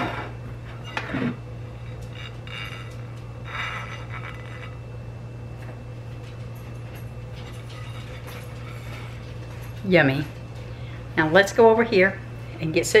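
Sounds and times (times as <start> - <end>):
plates scraping and rubbing: 0.0 - 4.8, 7.4 - 9.3
steady low hum: 0.0 - 13.0.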